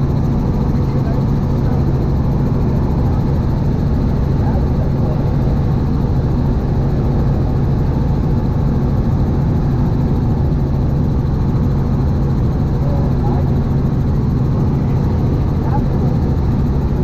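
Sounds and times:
helicopter engine and rotor drone: 0.0 - 17.0.

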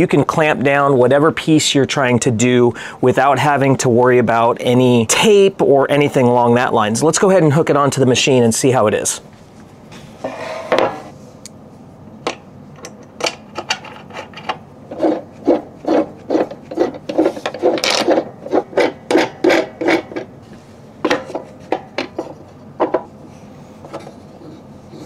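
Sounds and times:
hex key scraping strokes: 10.0 - 11.5, 14.0 - 25.0.

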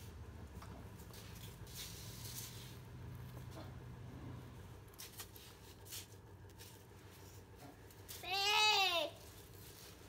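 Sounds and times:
steady low hum: 0.0 - 10.0
soft rustle: 9.2 - 10.0.

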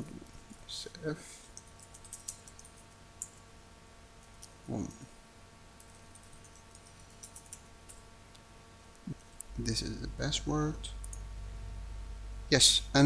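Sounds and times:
keyboard typing: 1.5 - 3.4, 5.8 - 8.0.

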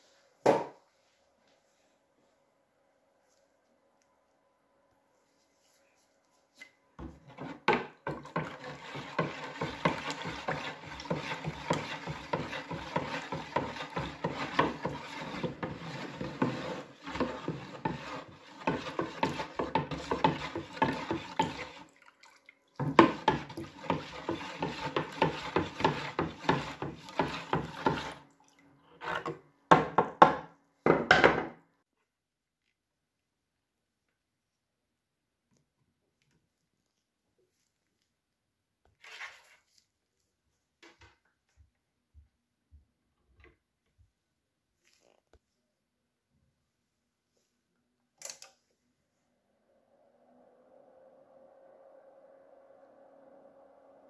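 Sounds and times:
stick stirring water: 7.0 - 29.8
stick knocking against plastic jug: 22.8 - 28.1.

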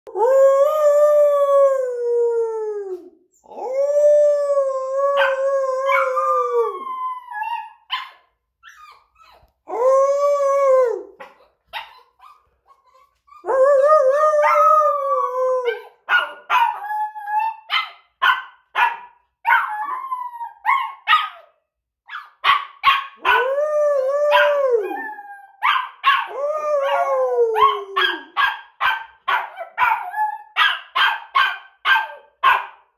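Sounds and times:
puppy howling: 0.1 - 17.8, 19.5 - 21.5, 23.0 - 28.5
puppy yipping and barking: 7.3 - 9.6, 11.2 - 13.4, 15.7 - 23.4, 24.3 - 26.3, 27.6 - 32.8.

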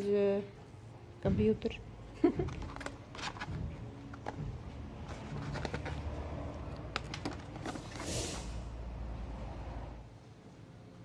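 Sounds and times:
packaging rustle: 2.4 - 4.4, 5.0 - 8.1.

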